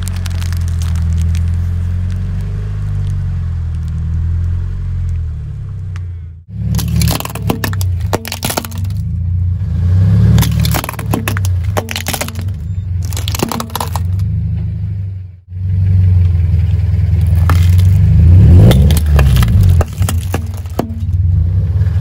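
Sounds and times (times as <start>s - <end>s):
tin boxes crumpling: 0.0s - 1.6s, 6.8s - 9.0s, 10.4s - 14.2s, 17.2s - 18.0s, 18.6s - 21.1s
plastic toys cracking under tyre: 0.0s - 4.0s, 6.7s - 9.1s, 10.4s - 14.3s, 17.2s - 21.2s
car rumble: 0.0s - 22.0s.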